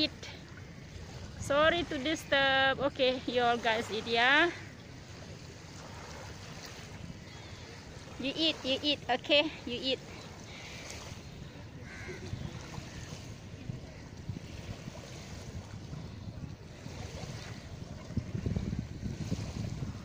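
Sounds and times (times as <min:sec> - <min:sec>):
small waves washing onto shore: 0:00.0 - 0:20.0
wind buffeting microphone: 0:00.0 - 0:20.0.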